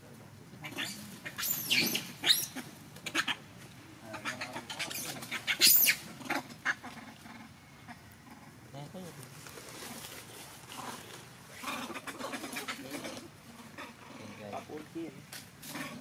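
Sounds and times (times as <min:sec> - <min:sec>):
baby monkey squealing: 0:00.6 - 0:03.4, 0:04.1 - 0:07.4.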